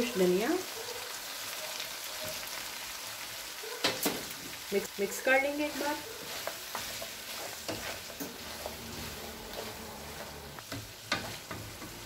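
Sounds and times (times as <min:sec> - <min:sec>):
meat sizzling in butter: 0:00.0 - 0:12.0
spatula scraping and tapping pan: 0:05.6 - 0:12.0.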